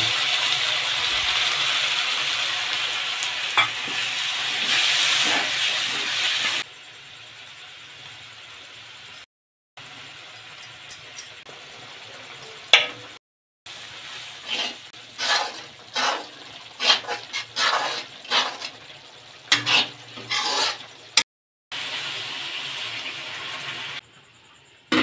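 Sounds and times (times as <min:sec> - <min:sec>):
faint sizzle: 0:00.0 - 0:09.2, 0:11.5 - 0:12.7, 0:21.7 - 0:24.9
ladle scraping metal pan: 0:14.4 - 0:18.9, 0:19.5 - 0:21.2.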